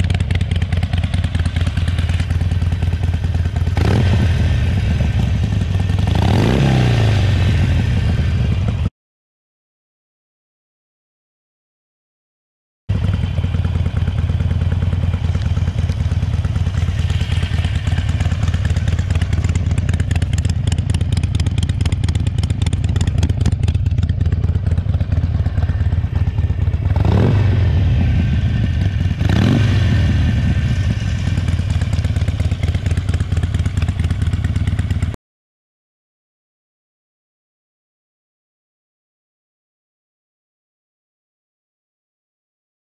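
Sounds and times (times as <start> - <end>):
motorcycle engine idling and revving: 0.0 - 8.9, 12.9 - 35.2.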